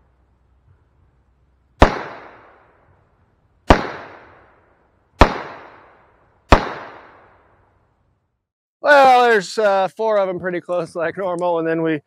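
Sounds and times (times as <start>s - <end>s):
revolver shots with echo: 1.8s - 2.6s, 3.7s - 4.4s, 5.2s - 7.2s.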